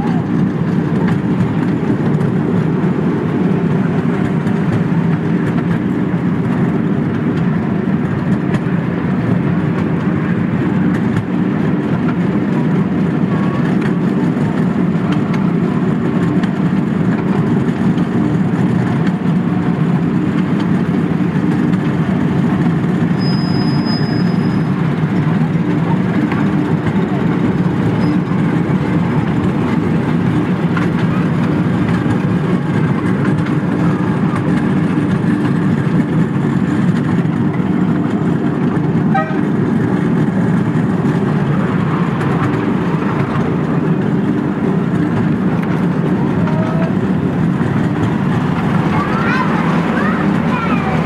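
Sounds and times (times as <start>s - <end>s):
miniature train rumbling: 0.0s - 51.0s
high squeal: 23.2s - 24.7s.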